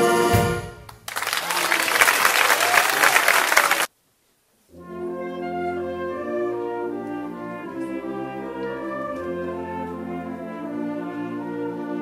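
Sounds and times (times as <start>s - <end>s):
wind band brass chords: 0.0s - 0.9s, 4.7s - 12.0s
audience applause: 0.9s - 3.9s.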